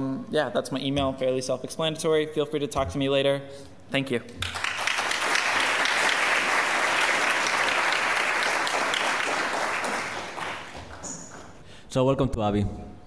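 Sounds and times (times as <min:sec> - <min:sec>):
audience applauding: 0:04.4 - 0:11.6.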